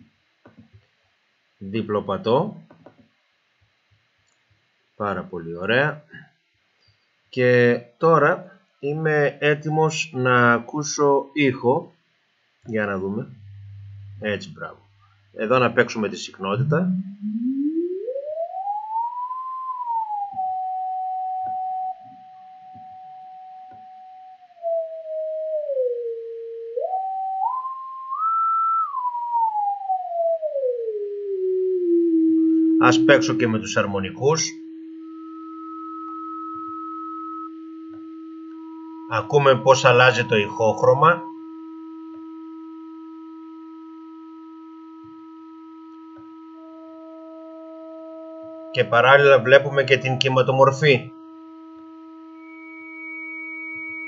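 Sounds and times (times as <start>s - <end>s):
sine tone sweeping in pitch: 12.7s - 54.0s.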